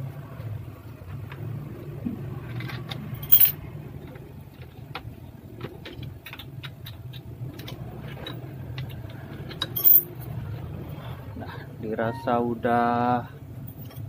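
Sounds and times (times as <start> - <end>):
steady low background hum: 0.0 - 14.0
sharp metallic clink: 3.2 - 3.6, 9.8 - 10.1.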